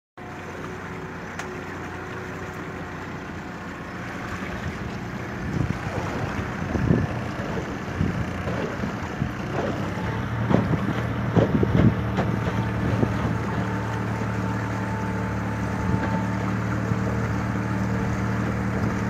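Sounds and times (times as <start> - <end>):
boat engine humming: 0.2 - 19.0
wind buffeting microphone: 4.5 - 13.7.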